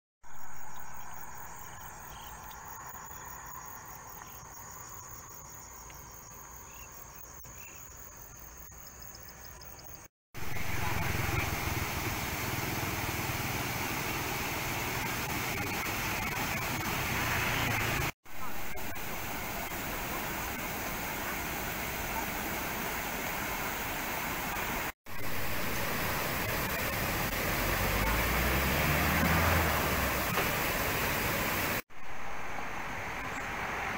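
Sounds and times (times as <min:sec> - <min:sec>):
insects trilling: 0:00.3 - 0:10.1
floodwater rushing: 0:10.4 - 0:33.9.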